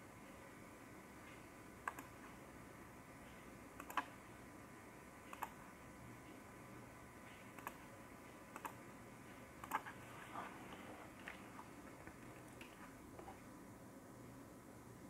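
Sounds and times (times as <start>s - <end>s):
computer mouse clicking: 1.8s - 2.3s, 3.8s - 4.2s, 5.3s - 5.6s, 7.5s - 7.8s, 8.5s - 8.8s, 9.6s - 10.0s.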